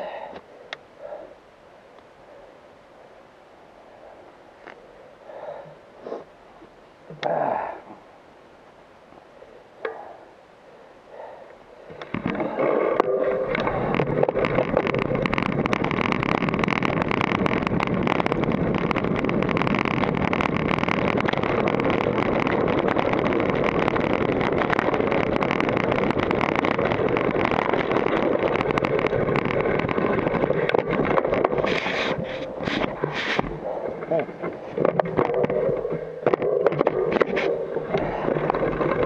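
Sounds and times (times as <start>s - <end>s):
tyre and wind rush: 12.1s - 35.0s
bike clattering over bumps: 13.4s - 39.0s.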